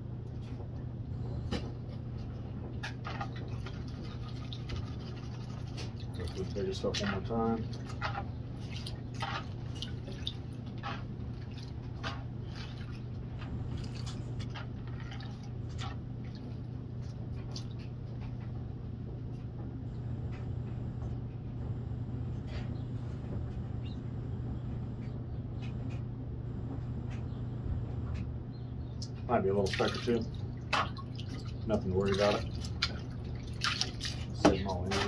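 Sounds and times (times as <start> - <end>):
steady low hum: 0.0 - 35.0
water dripping and splashing: 3.1 - 17.9, 29.0 - 35.0.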